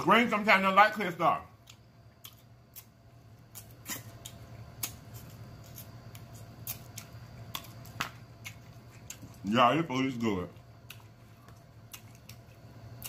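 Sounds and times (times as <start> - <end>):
low steady hum: 0.0 - 13.0
person chewing and lip-smacking: 1.6 - 9.5, 10.6 - 13.0.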